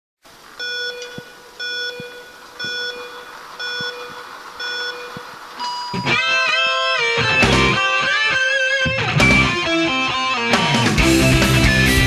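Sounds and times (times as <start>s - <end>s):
countdown clock beeps: 0.6s - 7.7s.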